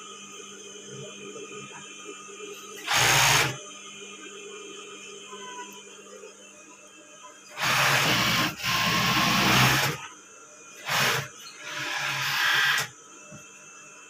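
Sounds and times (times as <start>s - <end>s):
sewing machine stitching: 2.8s - 3.6s, 7.5s - 10.0s, 10.8s - 12.9s.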